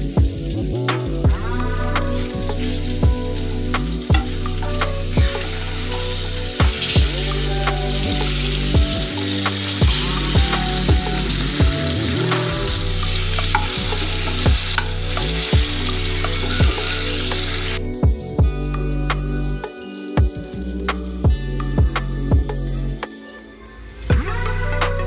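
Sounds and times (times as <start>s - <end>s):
fish sizzling in hot oil: 0.0s - 17.9s
background music with steady beat: 0.0s - 25.0s.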